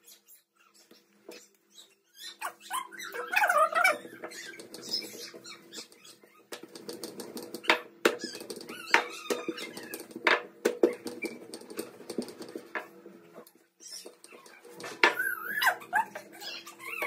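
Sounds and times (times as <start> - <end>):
rolling pin rolling dough: 2.6 - 17.0
hands patting dough: 4.0 - 16.3.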